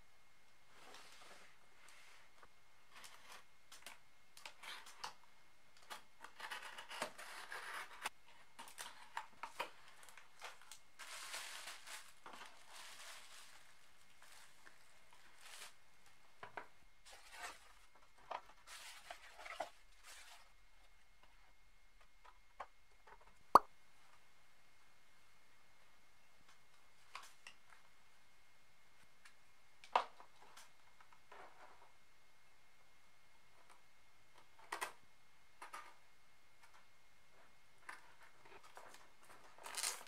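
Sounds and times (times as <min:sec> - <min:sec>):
packaging rustling: 0:39.5 - 0:40.0.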